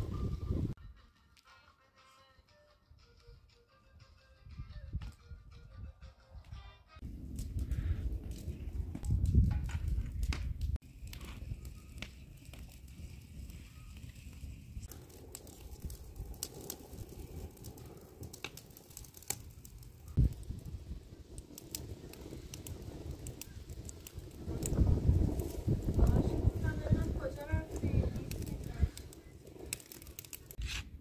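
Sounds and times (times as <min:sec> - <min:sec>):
low rumble of fire: 0:00.0 - 0:00.8, 0:07.0 - 0:31.0
wood fire crackling: 0:07.0 - 0:31.0.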